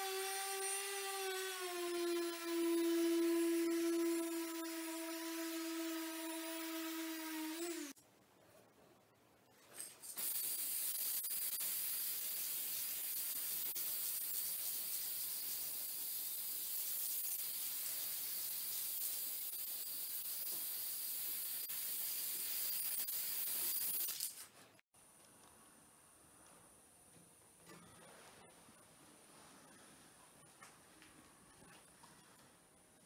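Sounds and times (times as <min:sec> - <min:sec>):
aerosol spray can hissing: 0:10.2 - 0:24.4.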